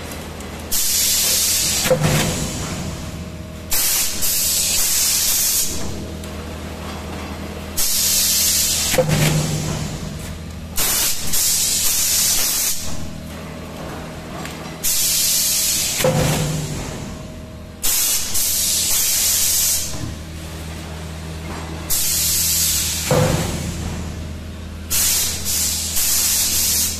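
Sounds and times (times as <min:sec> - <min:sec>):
steady low hum: 0:00.0 - 0:26.9
compressed air hissing: 0:00.7 - 0:02.5, 0:03.7 - 0:05.8, 0:07.8 - 0:09.0, 0:10.8 - 0:13.0, 0:14.8 - 0:16.0, 0:17.8 - 0:19.9, 0:21.9 - 0:23.1, 0:24.9 - 0:26.9
machine clunk: 0:01.8 - 0:03.9, 0:08.9 - 0:11.5, 0:16.0 - 0:17.3, 0:23.0 - 0:24.4.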